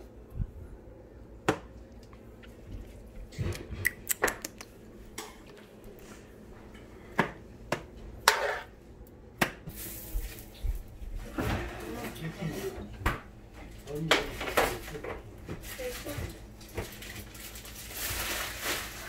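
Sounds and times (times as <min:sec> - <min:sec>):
dishes scraping clatter: 0:08.2 - 0:08.7.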